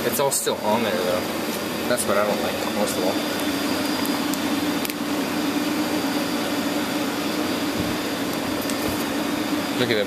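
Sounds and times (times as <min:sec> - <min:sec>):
workshop machinery humming: 0:00.0 - 0:10.0.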